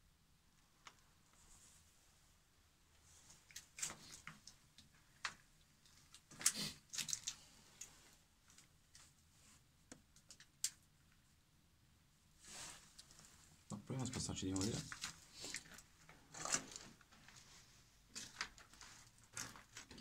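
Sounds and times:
rustles and scuffs of movement: 12.4 - 20.0.

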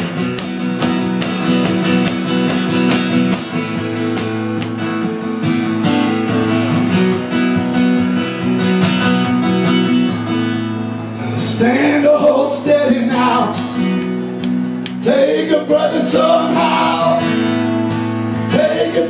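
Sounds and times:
acoustic guitar strumming: 0.0 - 19.0.

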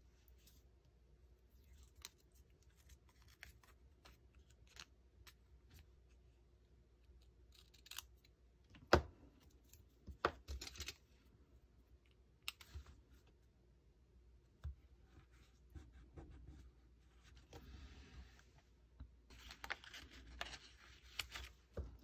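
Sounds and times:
paper rustling: 19.3 - 22.0.

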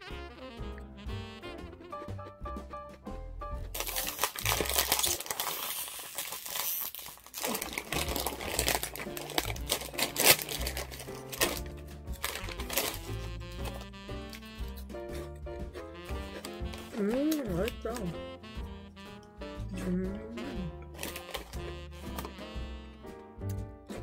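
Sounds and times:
snack bag crinkling: 3.7 - 18.7, 19.5 - 22.6.

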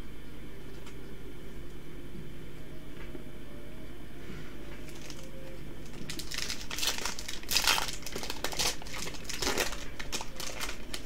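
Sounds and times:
foil wrapper tearing and crinkling: 4.8 - 11.0.

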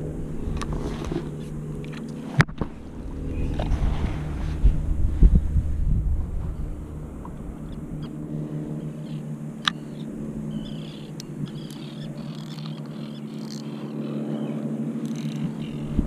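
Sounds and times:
distant motorboat engine: 0.0 - 16.0
short bird calls: 8.8 - 16.0.

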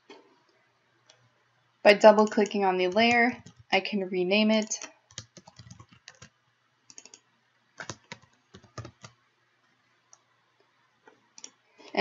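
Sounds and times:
quiet keyboard typing: 2.1 - 3.8, 4.5 - 9.2, 10.0 - 10.3, 11.1 - 12.0.

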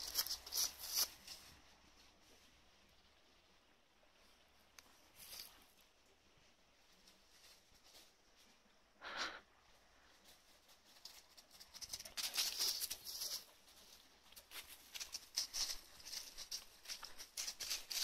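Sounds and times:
dogs running through dry leaves: 0.0 - 1.5, 10.2 - 18.0.

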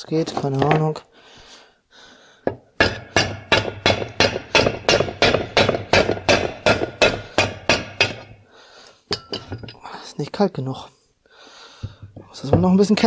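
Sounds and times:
rubber mallet striking metal case: 2.5 - 8.4.

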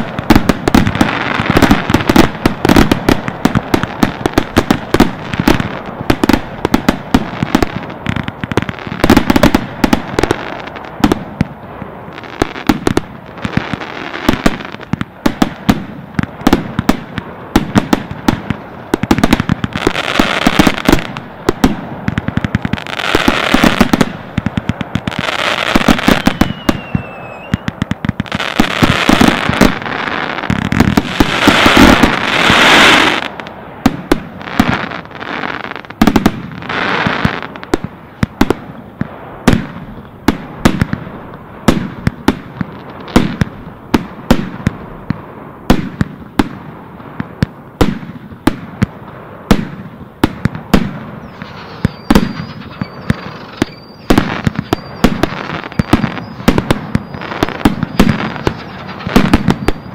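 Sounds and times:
fireworks bangs: 0.0 - 59.9
thin steady whistle: 26.1 - 27.7, 51.2 - 58.7.

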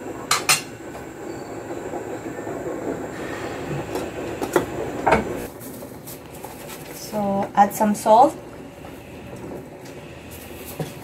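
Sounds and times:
sauce bubbling in saucepan: 8.0 - 11.0.

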